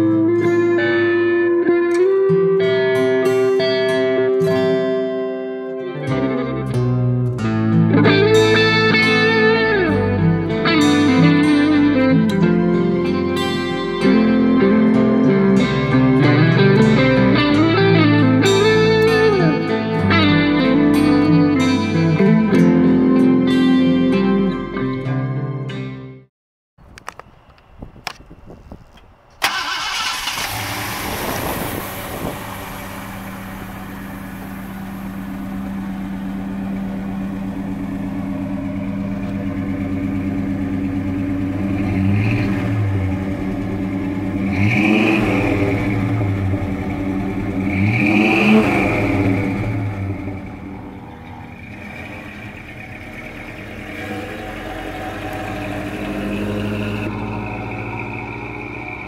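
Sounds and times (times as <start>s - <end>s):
car engine starting and idling: 5.9s - 24.9s, 26.8s - 59.0s
engine revving: 6.0s - 23.6s, 29.4s - 59.0s.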